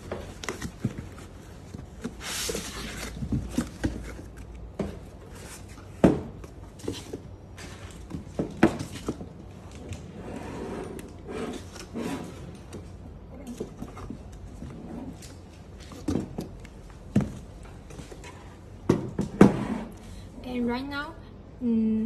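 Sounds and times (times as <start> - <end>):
foam and cardboard rustling: 0.0 - 9.4.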